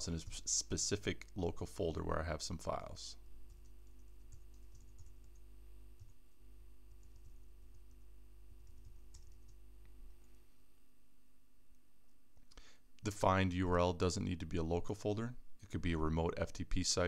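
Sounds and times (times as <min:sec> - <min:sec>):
steady low hum: 0:00.0 - 0:17.0
keyboard typing: 0:03.5 - 0:05.4, 0:06.9 - 0:08.0, 0:08.6 - 0:09.6.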